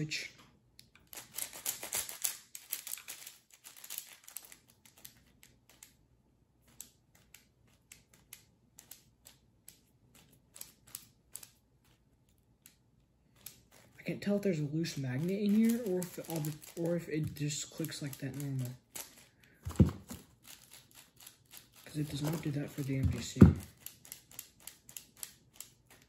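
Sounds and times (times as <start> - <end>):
plastic puzzle cube clicking: 0.9 - 6.0, 6.6 - 11.6, 20.4 - 26.0.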